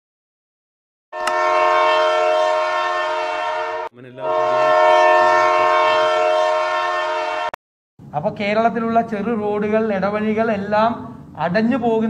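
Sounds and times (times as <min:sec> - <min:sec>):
train air horn blasts: 0:01.2 - 0:07.6.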